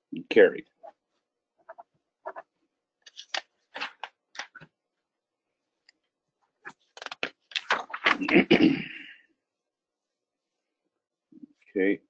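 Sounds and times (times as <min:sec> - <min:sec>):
papers rustling and scraping: 0:01.7 - 0:04.7, 0:06.5 - 0:08.4.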